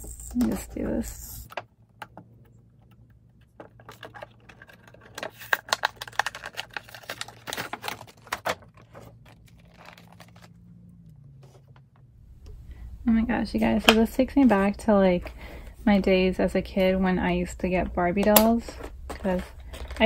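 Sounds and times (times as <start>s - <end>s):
packaging crackling and clicking: 2.8s - 10.6s, 18.2s - 20.0s.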